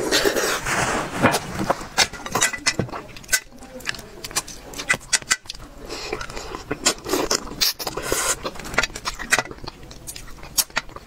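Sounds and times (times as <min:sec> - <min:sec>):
mouth chewing and smacking: 0:02.0 - 0:11.0
slurp: 0:05.9 - 0:08.6.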